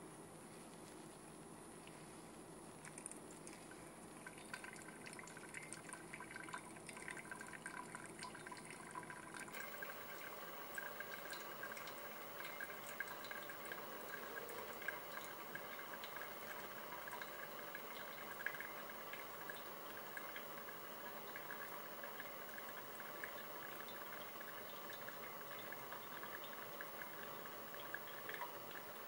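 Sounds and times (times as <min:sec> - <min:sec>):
fine crackle of ticks: 0:00.5 - 0:07.2, 0:09.6 - 0:29.0
water pouring onto coffee grounds: 0:02.6 - 0:29.0
coffee dripping into glass: 0:04.2 - 0:29.0.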